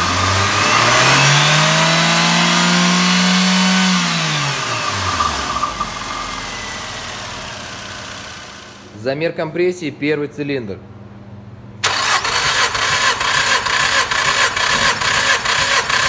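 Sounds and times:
car engine revving: 0:00.0 - 0:08.9
car engine idling: 0:02.5 - 0:08.9.

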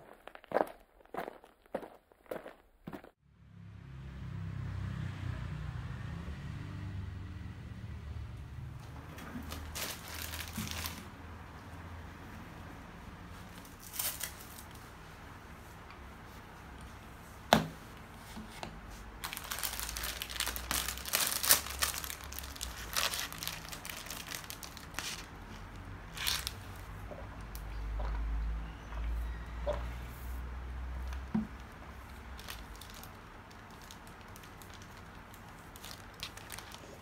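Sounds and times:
plastic wrapper crinkling and tearing: 0:09.4 - 0:11.1, 0:13.7 - 0:14.7, 0:19.2 - 0:25.3, 0:26.2 - 0:26.6, 0:32.3 - 0:37.0.

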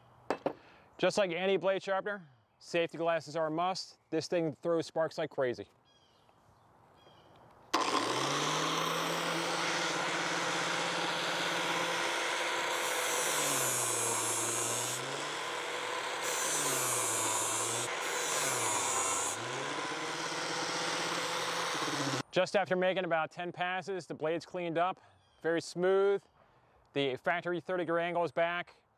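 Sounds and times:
angle grinder running: 0:07.8 - 0:22.2
hissing grind of metal blade: 0:08.9 - 0:22.2.

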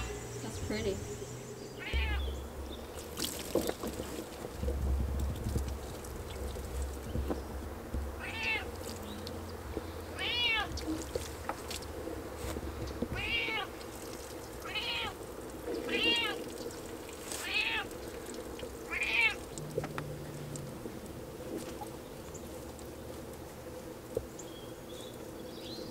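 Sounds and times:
animal calling: 0:00.0 - 0:02.6
low steady hum: 0:00.0 - 0:25.9.

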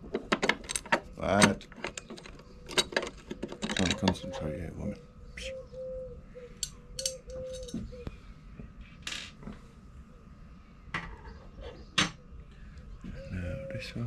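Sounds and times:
screws clinking and rattling: 0:00.1 - 0:04.2, 0:06.6 - 0:07.8.

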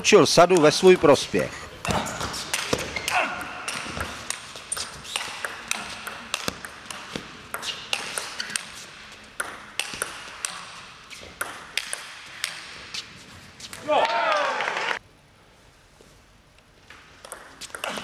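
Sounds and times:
table tennis ball clicking: 0:09.4 - 0:10.6.

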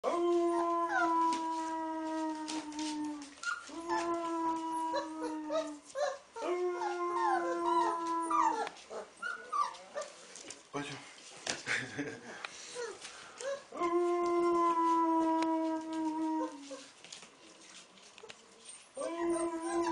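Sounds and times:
wolf pup howling and yipping: 0:00.0 - 0:09.7, 0:13.8 - 0:16.8, 0:19.0 - 0:19.9.

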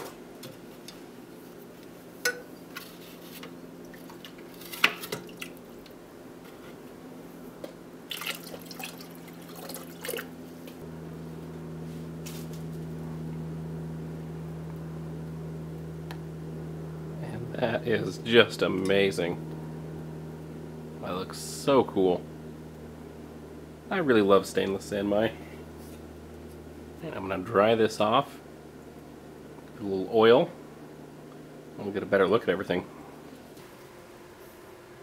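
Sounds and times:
steady low hum: 0:00.0 - 0:35.0
liquid dripping and splashing: 0:05.1 - 0:05.6, 0:08.1 - 0:10.4.

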